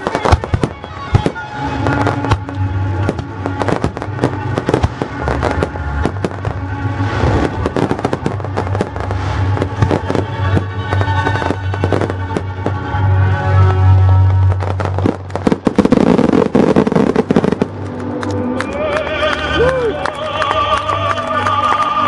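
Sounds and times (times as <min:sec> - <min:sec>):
fireworks bursting and crackling: 0:00.0 - 0:20.2
music playing: 0:00.0 - 0:22.0.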